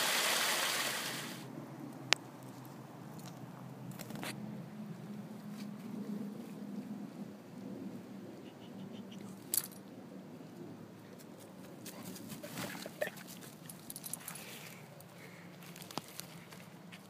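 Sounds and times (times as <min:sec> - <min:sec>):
footsteps on forest floor: 0:15.6 - 0:17.0
twigs crackling: 0:15.6 - 0:17.0.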